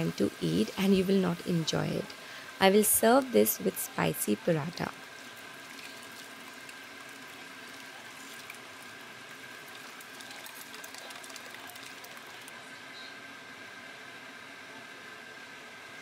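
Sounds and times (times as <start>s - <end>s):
faint high hum: 0.0s - 16.0s
thick liquid pouring and bubbling: 4.9s - 12.5s.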